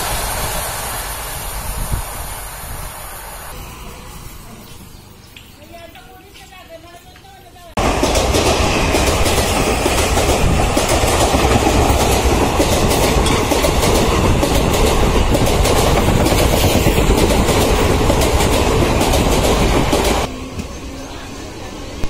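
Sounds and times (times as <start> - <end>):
train wheels rushing on rails: 0.0 - 3.6, 7.8 - 22.0
clickety-clack over rail joints: 5.9 - 20.7.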